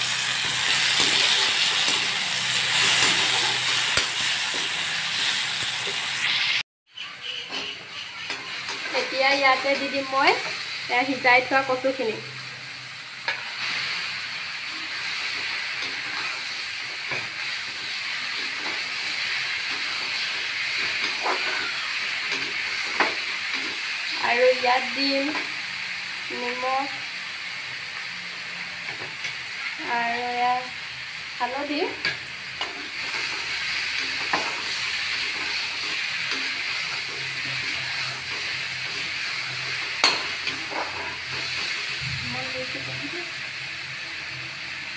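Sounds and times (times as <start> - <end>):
food sizzling in hot oil: 0.0 - 44.9
spatula scraping pan: 13.2 - 24.6, 32.0 - 42.0
metal spatula stirring: 32.0 - 41.7.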